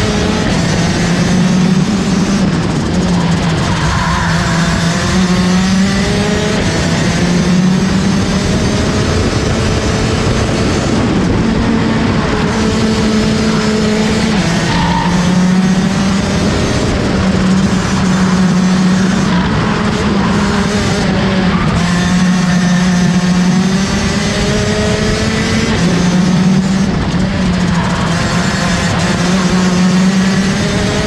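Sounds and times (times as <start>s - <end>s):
kart two-stroke engine racing: 0.0s - 31.0s.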